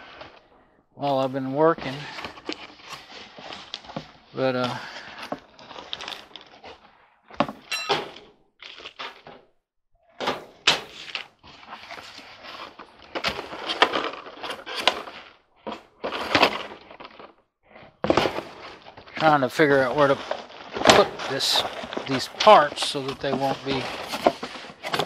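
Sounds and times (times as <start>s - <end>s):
tools and parts clattering: 7.5s - 8.3s
short metallic ring: 7.7s - 8.2s.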